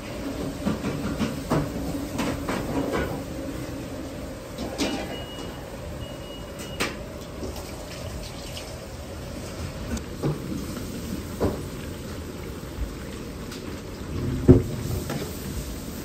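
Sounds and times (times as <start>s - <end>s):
gas burner rushing: 0.0s - 7.6s, 14.2s - 16.0s
food deep-frying in oil: 4.9s - 16.0s.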